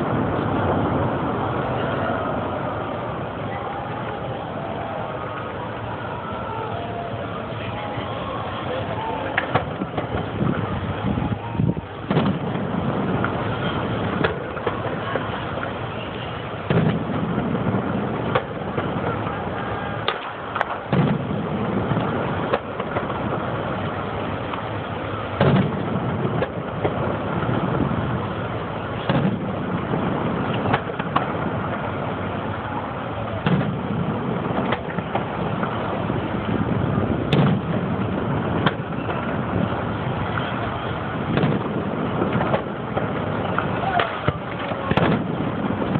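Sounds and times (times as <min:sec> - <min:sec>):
firework launches and crackle: 0:00.0 - 0:45.9
firework shells bursting: 0:11.8 - 0:45.9.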